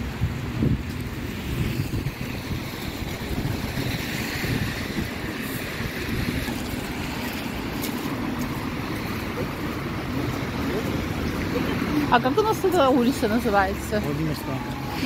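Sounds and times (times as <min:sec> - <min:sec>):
wind rumble on microphone: 0:00.0 - 0:11.5
traffic on wet road: 0:00.0 - 0:15.0.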